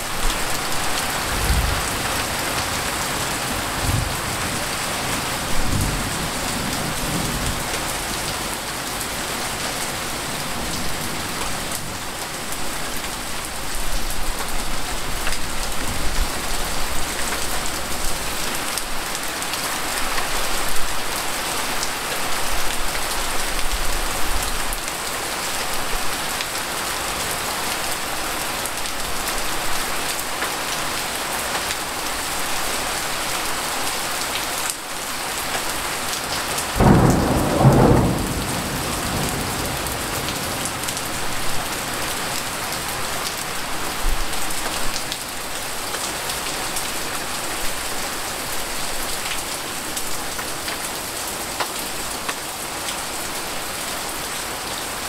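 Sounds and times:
heavy rain falling: 0.0 - 55.0
loud thunder clap: 1.2 - 2.3, 36.8 - 40.7.

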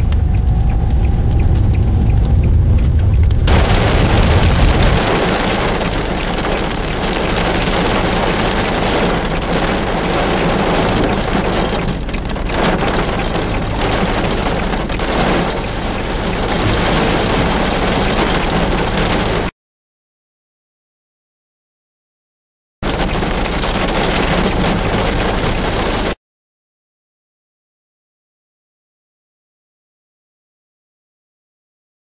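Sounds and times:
heavy rain on vehicle: 0.0 - 19.5, 22.8 - 26.2
low rumble: 0.0 - 19.5.

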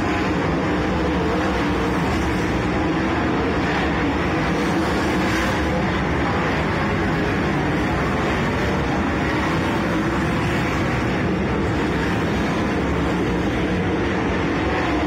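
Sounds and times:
race car engines roaring: 0.0 - 15.0.

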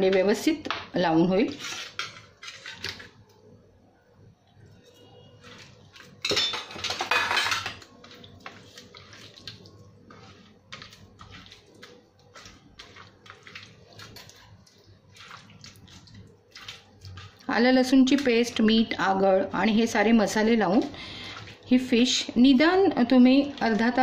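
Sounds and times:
steel bowl clattering on plate: 6.2 - 7.8
hands squishing wet fish: 7.8 - 18.5, 20.6 - 21.9.

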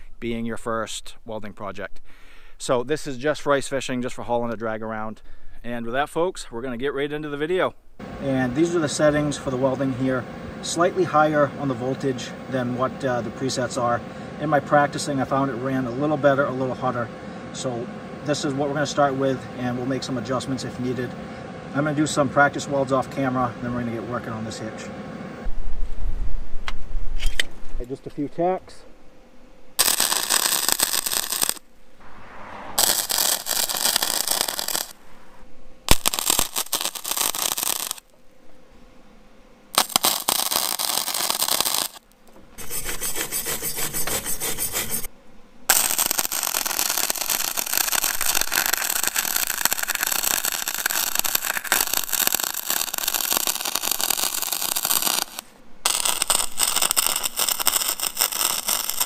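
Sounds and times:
welding arc crackling and sizzling: 29.8 - 31.6, 32.8 - 35.0, 35.9 - 38.2, 39.7 - 45.1, 45.7 - 59.0
wire brush scrubbing steel: 42.6 - 45.1.

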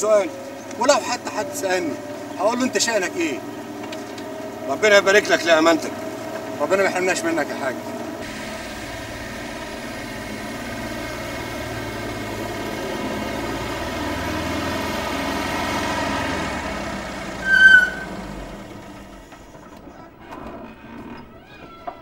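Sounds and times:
old car engine running: 0.0 - 22.0
high-pitched squeal: 8.2 - 20.1.

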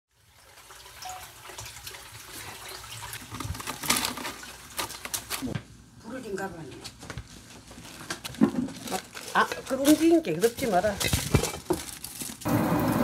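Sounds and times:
water sloshing and splashing: 0.3 - 5.3.

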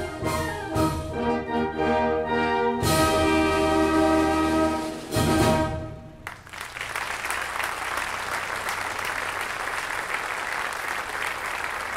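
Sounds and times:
audience applause: 6.2 - 11.9.

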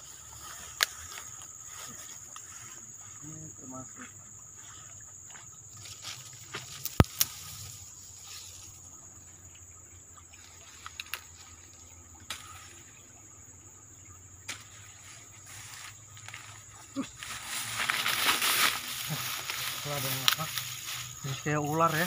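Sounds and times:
snaps and rustles in undergrowth: 0.0 - 2.7, 5.8 - 8.8, 10.4 - 13.0, 14.4 - 22.0
high-pitched insect drone: 0.0 - 22.0.

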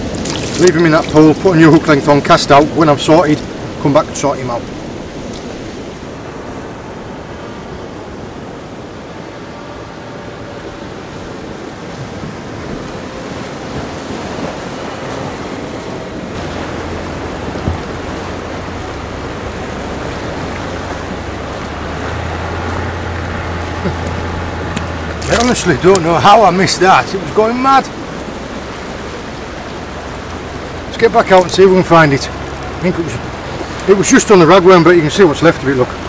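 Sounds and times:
wind on microphone: 0.0 - 26.1
waves washing against rocks: 0.0 - 36.0.

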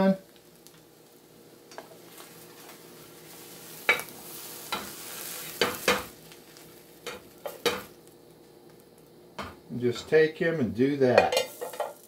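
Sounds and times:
omelet sizzling in skillet: 0.0 - 12.0
pan and plate clinking: 11.2 - 12.0.

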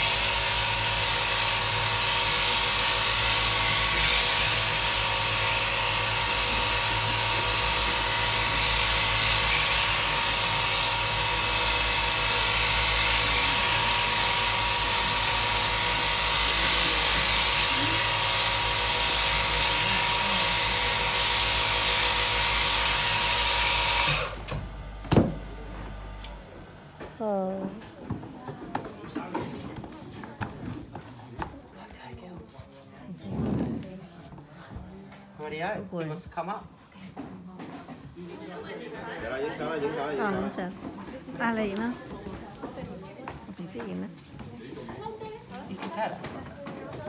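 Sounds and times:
shearing handpiece whining: 0.0 - 26.8.

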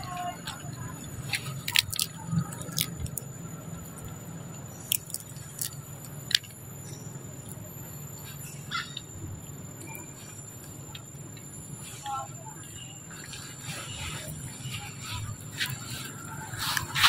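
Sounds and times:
peanut shells cracking: 1.4 - 3.3, 4.8 - 6.6.

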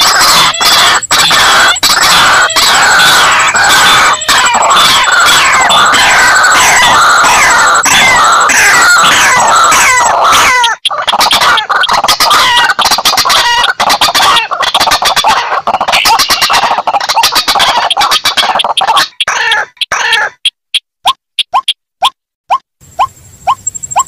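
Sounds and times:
waterhens and rails calling: 0.0 - 24.0.

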